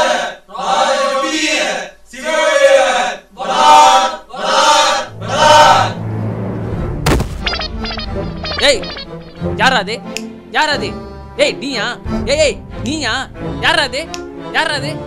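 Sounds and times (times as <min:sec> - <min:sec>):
chorus of voices chanting: 0:00.0 - 0:06.4
low musical drone: 0:05.0 - 0:09.7
sharp knock: 0:07.0 - 0:07.9.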